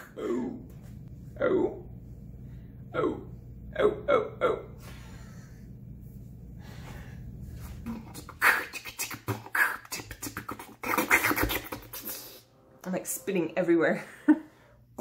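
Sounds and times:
woman beatboxing: 7.8 - 12.4.

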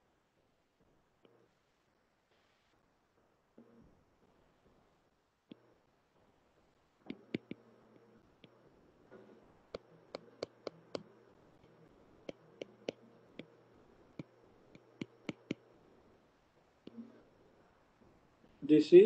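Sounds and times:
stylus tapping on glass screen: 7.1 - 7.6, 12.2 - 13.6.

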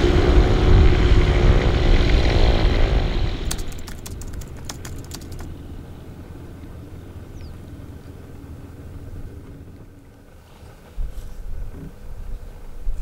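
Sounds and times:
propeller aircraft engine rumble: 0.0 - 13.0.

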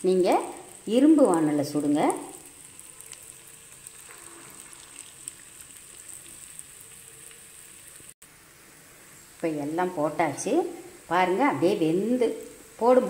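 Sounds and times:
food sizzling in hot oil: 0.0 - 13.0
oil crackles: 0.3 - 8.2.

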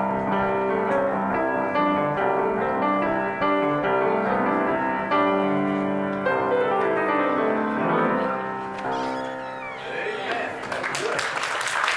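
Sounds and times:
piano playing slow chords: 0.0 - 10.2.

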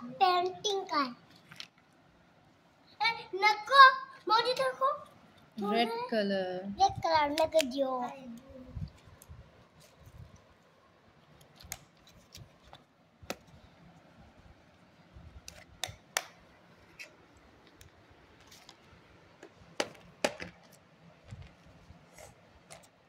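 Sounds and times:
plastic items clicking and tapping: 19.4 - 21.7.

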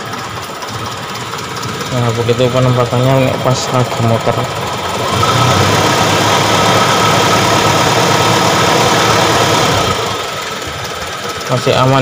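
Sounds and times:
engine running at raised revs: 0.0 - 12.0
radiator fan spinning: 0.0 - 12.0.

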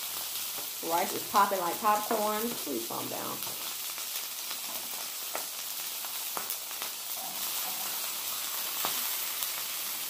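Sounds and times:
food sizzling on griddle: 0.0 - 10.0
rice popping: 0.0 - 10.0.

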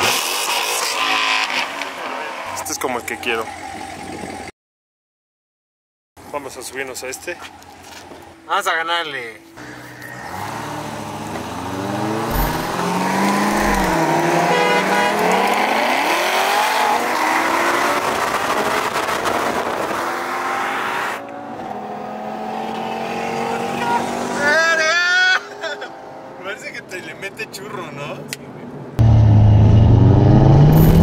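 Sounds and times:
sports car engines accelerating: 9.6 - 24.6, 29.0 - 31.0
steady engine drone: 11.8 - 14.2.

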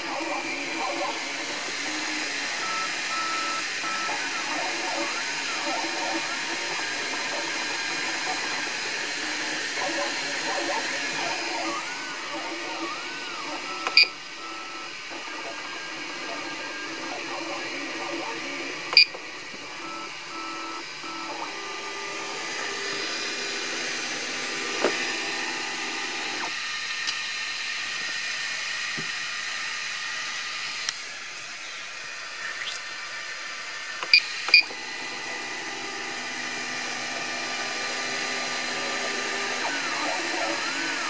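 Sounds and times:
stepper motor tones: 0.0 - 26.6, 33.8 - 41.0
buzzer beeps: 2.6 - 4.1, 13.7 - 14.9.

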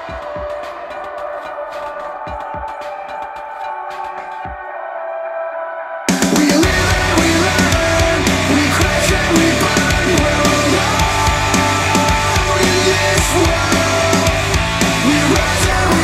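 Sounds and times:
instrumental rock music: 6.1 - 16.0.

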